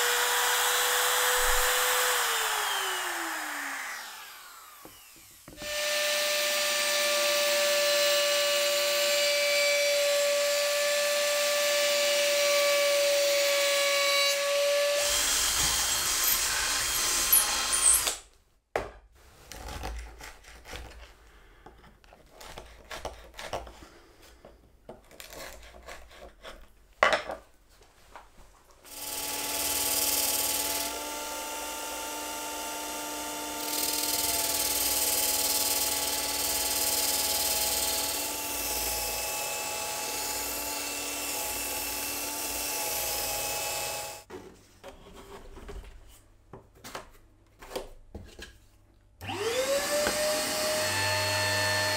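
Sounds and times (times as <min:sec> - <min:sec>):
electric power tool whining: 0:00.0 - 0:12.0, 0:49.2 - 0:51.9.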